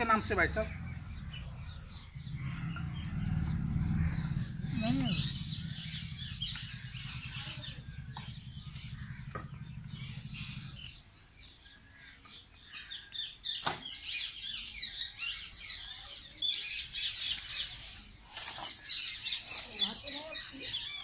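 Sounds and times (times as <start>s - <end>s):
low steady hum: 0.0s - 12.2s
small birds chirping: 0.0s - 21.0s.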